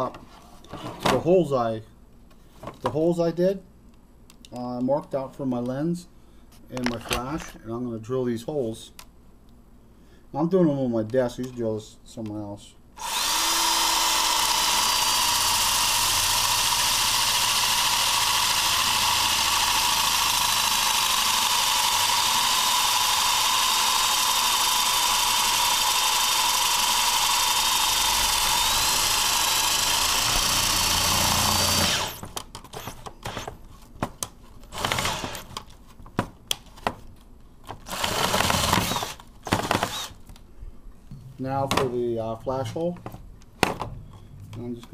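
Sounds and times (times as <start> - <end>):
electric drill whining: 13.0 - 33.5, 34.7 - 35.5, 37.8 - 40.2.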